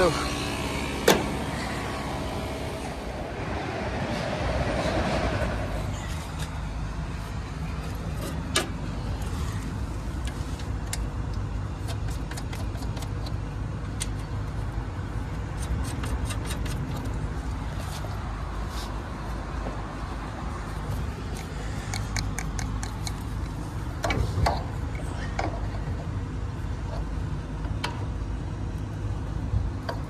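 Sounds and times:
condensing unit humming: 0.0 - 30.0
clicks and taps from wiring work: 10.2 - 14.4.

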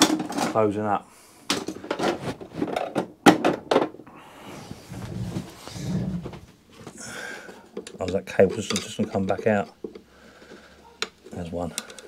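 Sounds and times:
rubbing and scraping: 1.8 - 3.0, 4.5 - 7.0.

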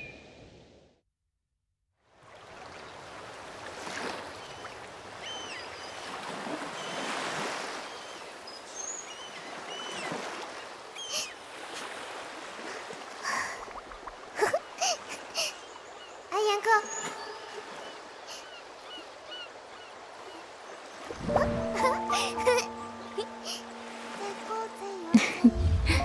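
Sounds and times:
small birds chirping: 7.8 - 10.2, 14.4 - 21.2
sea waves washing in: 17.2 - 26.0.

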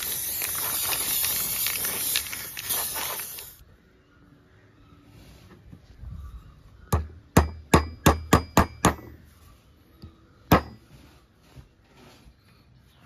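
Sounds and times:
hammer tapping on metal: 7.0 - 9.2.

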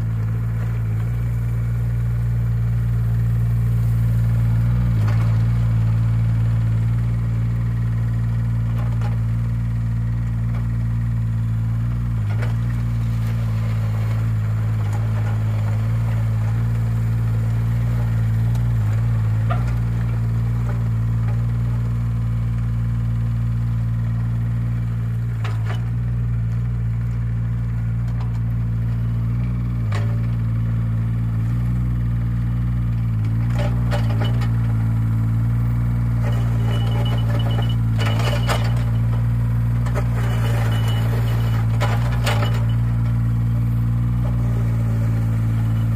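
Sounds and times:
excavator diesel engine running: 0.0 - 45.9
gravel clinking and scraping: 12.2 - 21.9, 33.3 - 45.9.

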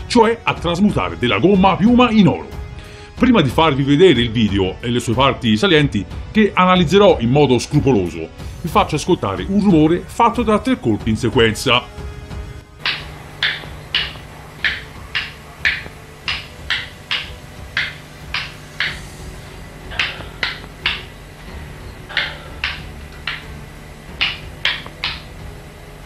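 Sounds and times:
low steady hum: 8.4 - 26.0.

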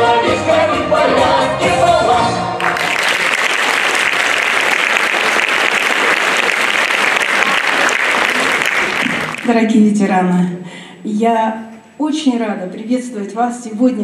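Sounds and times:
folk dance music: 0.6 - 9.6
audience applauding: 2.6 - 9.6.

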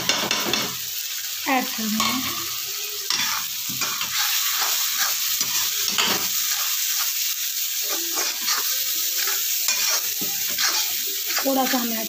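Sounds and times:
spice paste sizzling in oil: 0.0 - 12.0
metal ladle scraping pan: 7.8 - 12.0.

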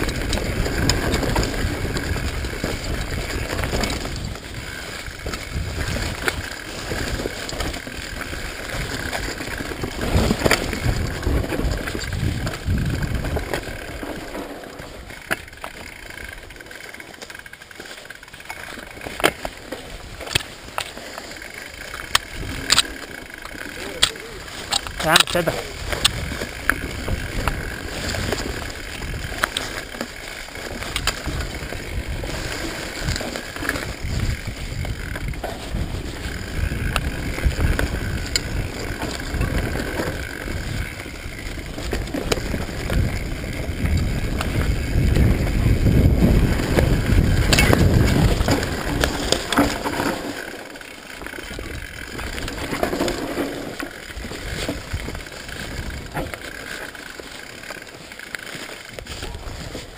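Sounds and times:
bike rattling over rocks: 0.0 - 59.9
rushing rumble: 24.2 - 50.4.

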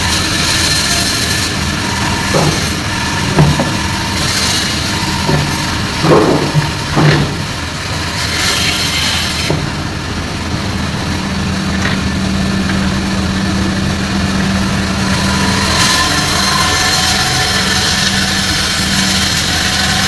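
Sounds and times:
band saw cutting fish: 0.0 - 9.9, 12.6 - 20.0.

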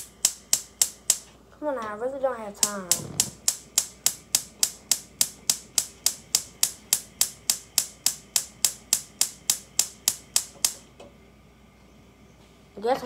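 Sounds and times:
gas stove igniter clicking: 0.0 - 1.3, 2.6 - 10.9.

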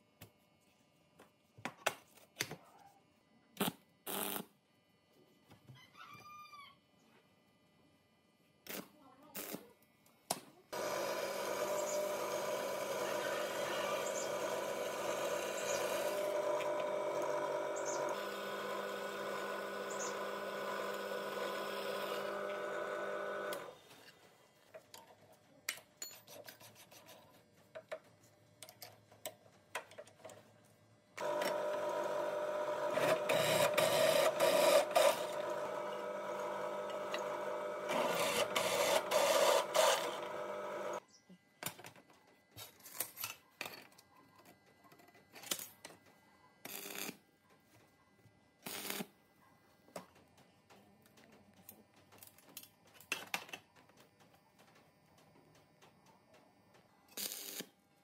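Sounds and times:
machine motor humming: 10.8 - 23.8, 31.2 - 41.0.

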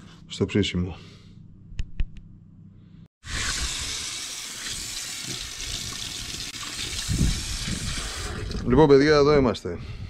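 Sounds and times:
tap water running into a steel sink: 3.3 - 8.7.

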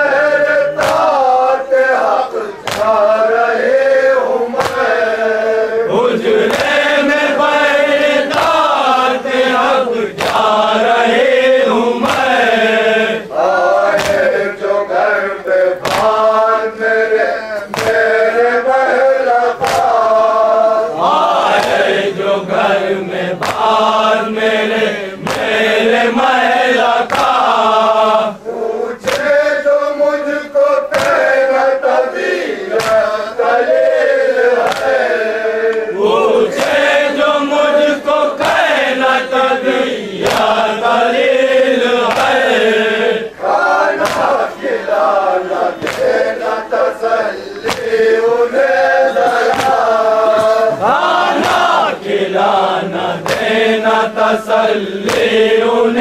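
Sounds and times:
men chanting in unison: 0.0 - 56.0
chest-beating slaps: 0.7 - 1.2, 2.5 - 3.2, 4.5 - 5.0, 6.2 - 6.9, 8.2 - 8.9, 10.1 - 10.9, 12.0 - 12.5, 13.8 - 14.4, 15.4 - 16.3, 17.6 - 18.2, 19.6 - 20.2, 21.0 - 22.1, 23.3 - 24.0, 25.2 - 25.8, 26.8 - 27.6, 29.0 - 29.4, 30.9 - 31.4, 32.7 - 33.3, 34.6 - 35.9, 36.5 - 37.1, 38.3 - 38.9, 40.2 - 41.3, 42.0 - 42.7, 43.9 - 44.6, 45.7 - 46.6, 47.5 - 48.3, 49.2 - 52.2, 53.1 - 53.9, 55.0 - 55.6.

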